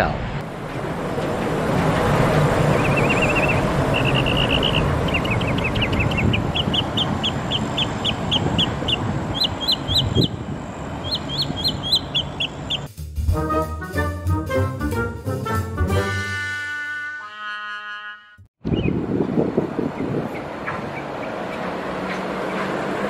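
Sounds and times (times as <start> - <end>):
monorail train rumbling past: 0.0 - 12.9, 19.0 - 23.0
songbird chirping and trilling: 2.6 - 12.9.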